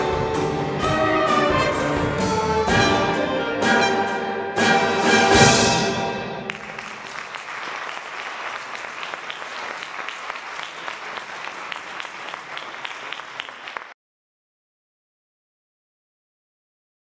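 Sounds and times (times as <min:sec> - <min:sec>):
brass chord ringing out: 0:00.0 - 0:06.4
applause: 0:06.5 - 0:14.0.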